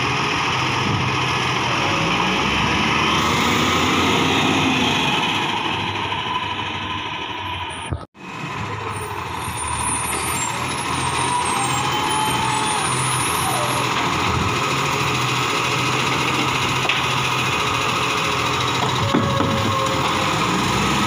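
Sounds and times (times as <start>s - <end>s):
garbage truck engine running: 0.0s - 21.0s
hydraulic arm lifting bin: 18.4s - 21.0s.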